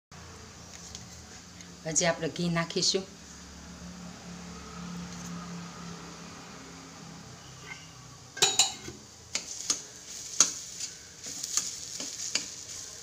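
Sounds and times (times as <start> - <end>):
steel spatula scraping a pan: 7.4 - 8.7, 9.4 - 13.0.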